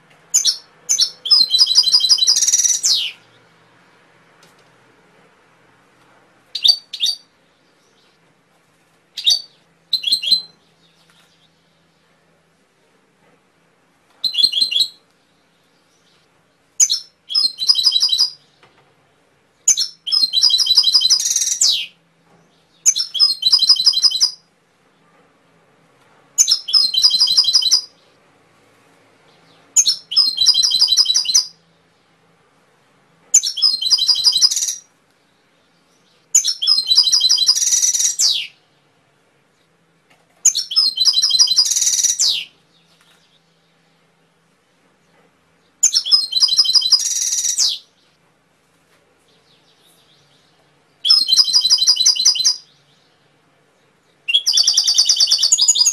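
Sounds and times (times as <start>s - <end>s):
canary singing high trills: 0.3s - 3.4s, 6.5s - 8.1s, 9.2s - 11.6s, 14.2s - 15.0s, 16.8s - 18.6s, 19.6s - 22.0s, 22.7s - 24.5s, 26.4s - 28.2s, 29.7s - 31.6s, 33.3s - 34.9s, 36.0s - 38.6s, 40.4s - 42.6s, 45.8s - 48.0s, 49.5s - 53.1s, 54.1s - 55.9s.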